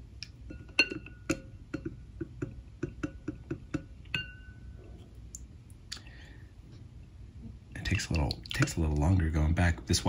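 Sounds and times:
ceramic bowl knock and ringing: 0.5 - 4.8.

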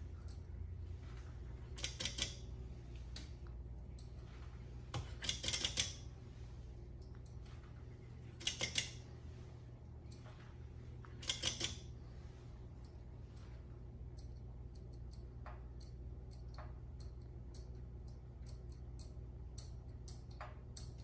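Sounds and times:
electrical hum: 0.0 - 21.0
sharp machine clicks: 1.8 - 2.4, 5.1 - 6.0, 8.4 - 9.0, 11.2 - 11.8.

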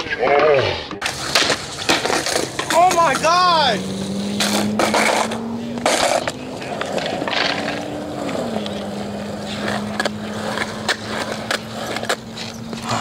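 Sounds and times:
skateboard wheels rolling on concrete: 0.0 - 13.0
skateboard clicks and knocks: 1.0 - 3.8, 4.4 - 13.0.

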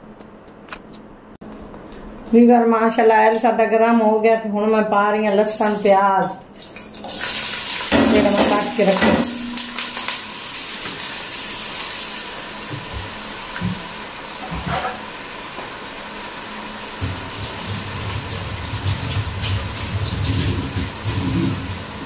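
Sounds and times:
onions sizzling in hot oil: 7.0 - 20.0.

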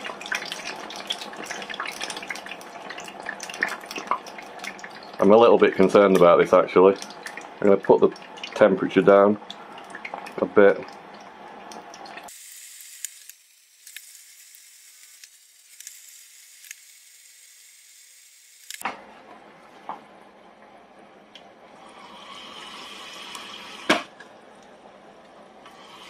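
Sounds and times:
potato chips sizzling in hot oil: 12.3 - 18.8
small clicks: 12.9 - 17.0, 18.5 - 18.8.

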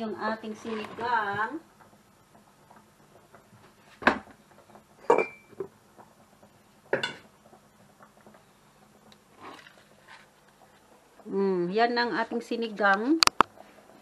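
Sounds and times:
cookware knocking and clinking: 5.0 - 5.7, 6.9 - 7.3.

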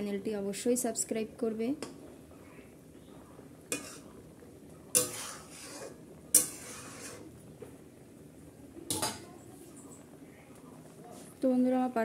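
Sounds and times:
spatula knocking and scraping pot: 3.7 - 4.1, 4.9 - 7.3.

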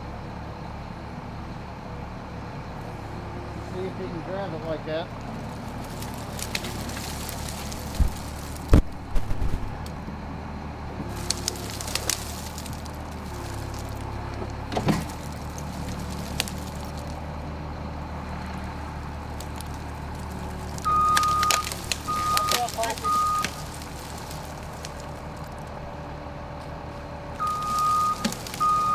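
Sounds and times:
diesel engine running: 0.0 - 28.9
branches cracking: 5.2 - 10.0, 11.0 - 17.4, 18.1 - 26.0, 27.3 - 28.9
reversing alarm beeping: 20.8 - 23.6, 27.4 - 28.9.

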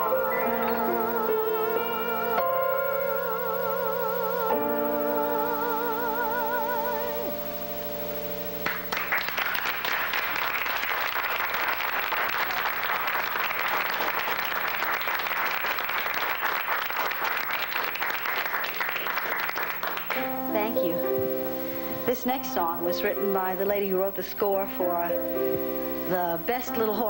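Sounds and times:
woman singing with vibrato: 0.0 - 7.6, 26.0 - 27.0
piano chord: 0.0 - 9.5, 20.0 - 27.0
audience applause: 8.6 - 21.1.

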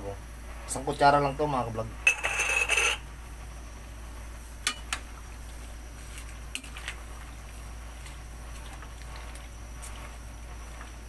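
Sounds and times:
metal spoon scraping steel pan: 2.1 - 3.0.

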